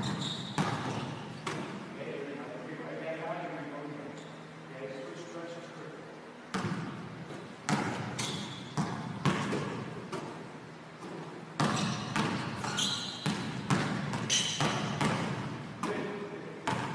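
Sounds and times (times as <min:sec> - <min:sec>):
high squeaks: 0:00.0 - 0:01.2, 0:11.7 - 0:13.3, 0:14.3 - 0:14.8.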